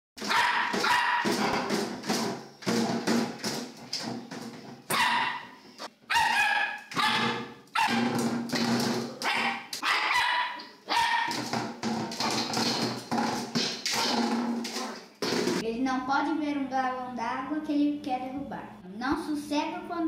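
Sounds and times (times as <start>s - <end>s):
small dog barking: 0.2s - 1.4s, 4.9s - 5.5s, 6.1s - 8.1s, 9.2s - 11.3s.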